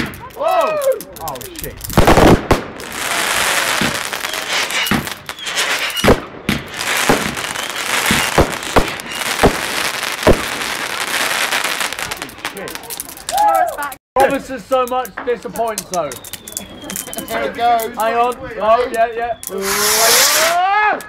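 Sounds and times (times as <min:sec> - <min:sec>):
fireworks crackling hiss: 0:01.0 - 0:17.8, 0:19.3 - 0:20.6
fireworks bangs: 0:01.8 - 0:13.3, 0:19.5 - 0:20.6.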